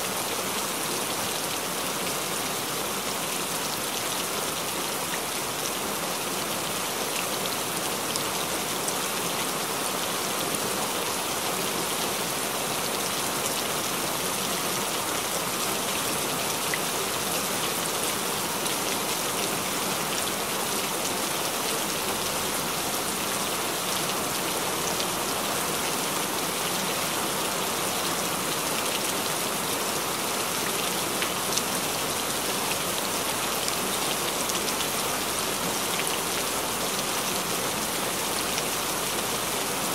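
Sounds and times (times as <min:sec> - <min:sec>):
steady rain hiss: 0:00.0 - 0:39.9.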